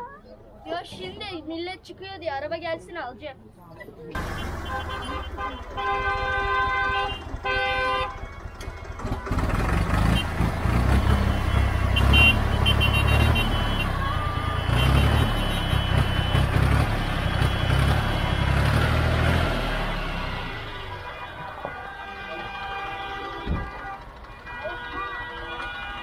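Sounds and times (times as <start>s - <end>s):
tractor engine rumbling: 3.8s - 26.0s
vehicle horn blasts: 4.2s - 8.4s, 10.0s - 26.0s.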